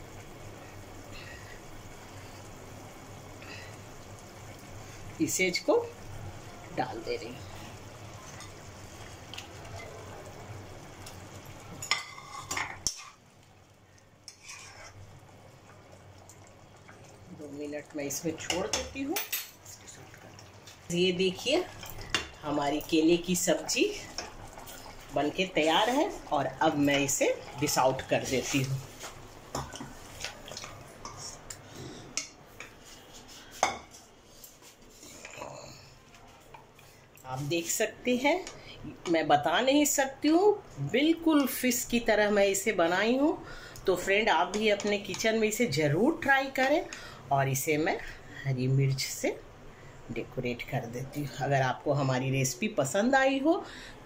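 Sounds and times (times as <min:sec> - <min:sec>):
gravy bubbling in a pan: 0:00.0 - 0:38.8
spoon scraping and clinking on a pan: 0:11.8 - 0:13.2, 0:14.3 - 0:15.0.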